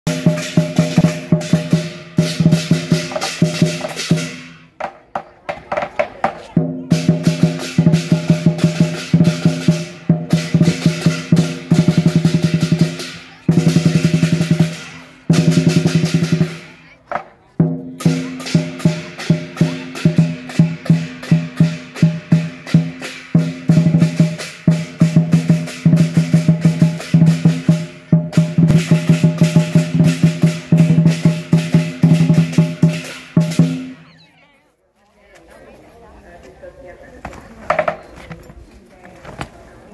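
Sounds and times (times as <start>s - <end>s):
lion dance drum rolls: 0.1s - 34.4s.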